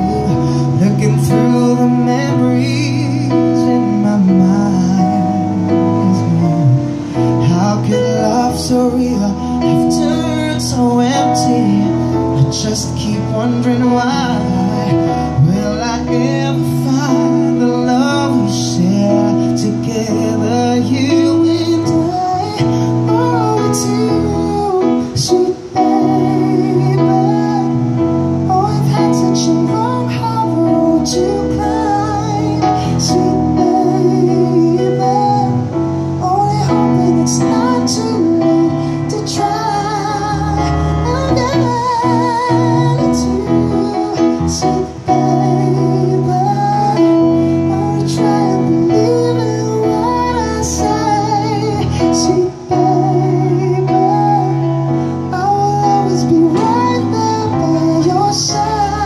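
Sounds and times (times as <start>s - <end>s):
electronic keyboard chords and bass: 0.0s - 59.0s
man singing a ballad: 0.0s - 59.0s.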